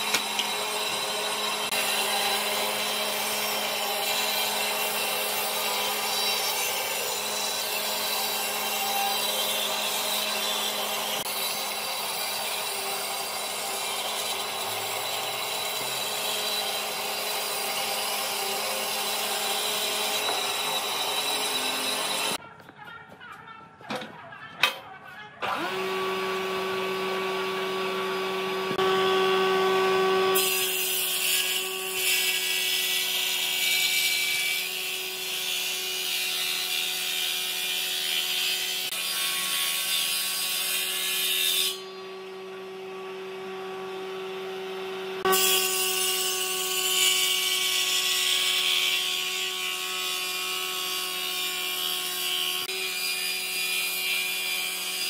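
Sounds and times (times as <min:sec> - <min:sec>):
tool cutting wood: 0:00.0 - 0:22.4, 0:25.4 - 0:55.0
power tool motor hum: 0:25.4 - 0:30.8.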